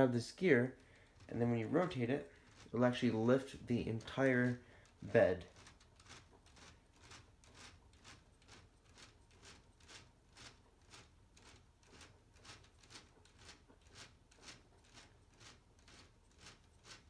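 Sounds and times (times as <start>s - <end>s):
toy gear train clicking: 0.6s - 17.0s.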